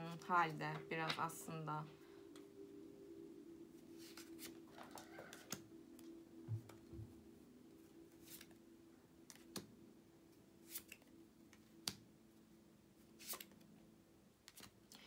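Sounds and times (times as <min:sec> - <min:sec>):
faint low hum: 0:00.0 - 0:15.0
cards clicking and brushing: 0:04.0 - 0:05.6, 0:08.2 - 0:08.6, 0:10.6 - 0:12.0, 0:13.2 - 0:13.7, 0:14.4 - 0:15.0.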